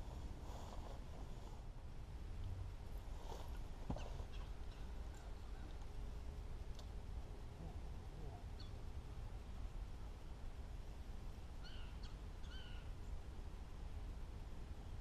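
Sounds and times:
low outdoor rumble: 0.0 - 15.0
bird calling: 11.6 - 12.9.

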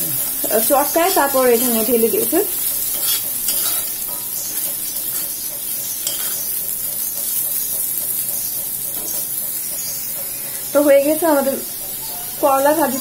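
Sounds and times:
vegetables sizzling in oil: 0.0 - 13.0
metal spatula scraping pan: 2.5 - 7.9.

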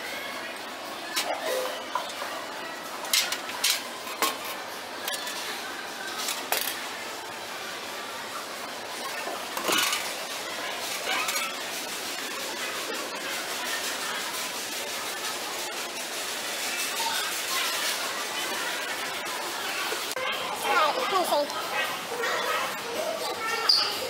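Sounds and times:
busy store background noise: 0.0 - 24.0.

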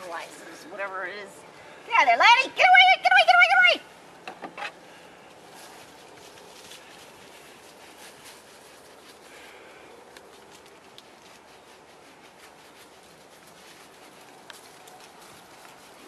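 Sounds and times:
hands rubbing dog's fur: 5.4 - 9.4, 10.0 - 16.0.

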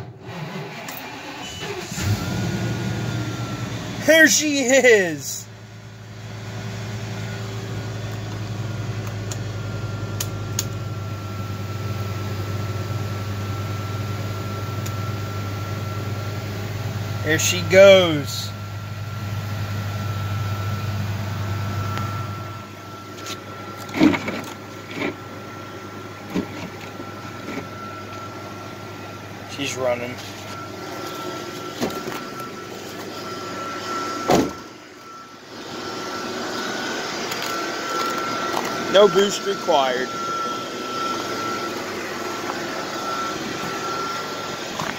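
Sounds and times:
heater blower fan: 0.0 - 44.9
thin steady whine: 1.8 - 44.9
steady high tone: 3.0 - 5.5, 17.2 - 18.6, 20.0 - 44.9
bus door shutting: 30.2 - 34.8.

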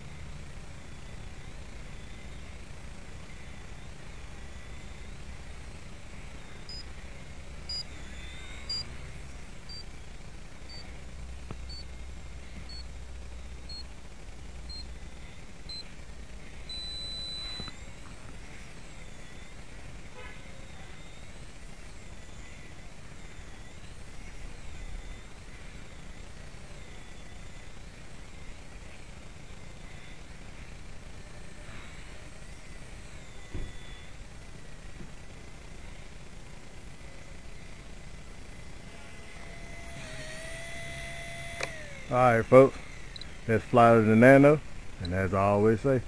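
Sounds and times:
distant rc helicopter whine: 0.0 - 46.0
short high electronic beeps: 6.7 - 6.9, 7.7 - 8.9, 16.7 - 17.7.

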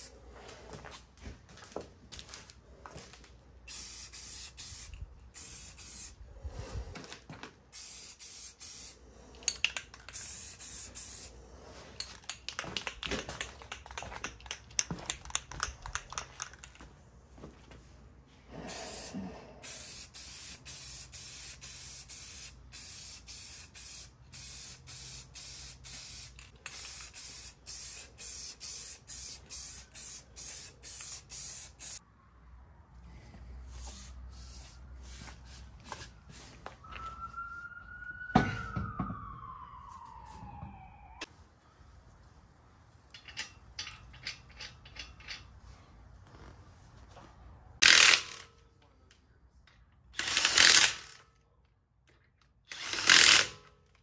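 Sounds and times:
spray paint can hissing: 3.6 - 6.2, 7.7 - 11.4, 18.7 - 32.0, 33.7 - 36.7
spray can mixing ball rattling: 7.8 - 11.3, 12.0 - 16.8, 19.6 - 32.0.

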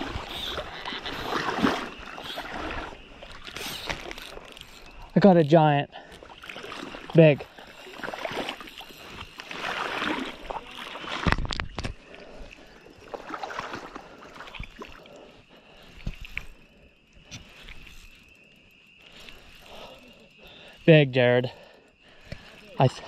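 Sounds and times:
water sloshing and splashing: 0.0 - 23.0.

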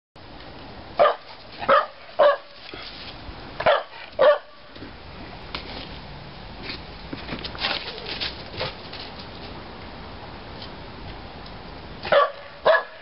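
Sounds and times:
dog barking: 1.0 - 2.5, 3.6 - 4.6, 12.1 - 13.0.

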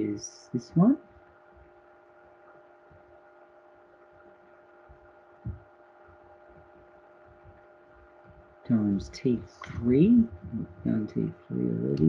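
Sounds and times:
faint electrical hum: 0.0 - 12.0
low thump: 5.4 - 5.7.

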